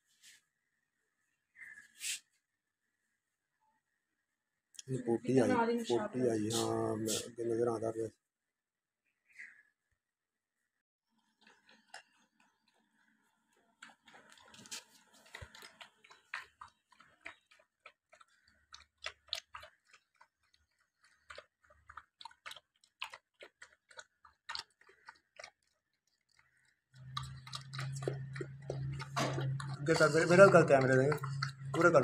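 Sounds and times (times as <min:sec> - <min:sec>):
dog eating wet food: 0:11.2 - 0:32.0.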